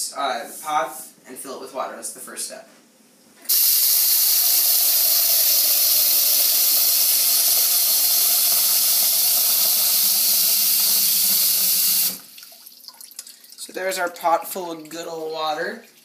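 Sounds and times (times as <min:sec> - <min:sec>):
faucet filling a metal pot: 0:03.5 - 0:16.0.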